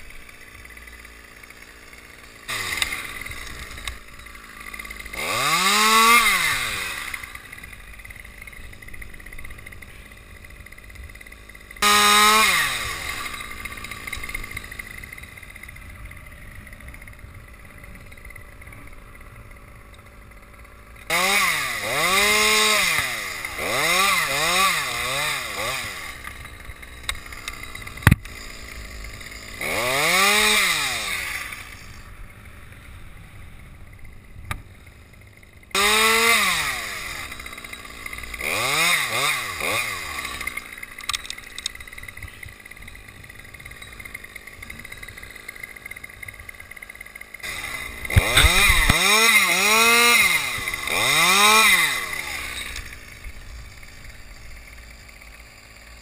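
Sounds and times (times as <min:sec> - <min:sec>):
chainsaw idling and revving: 0:00.0 - 0:56.0.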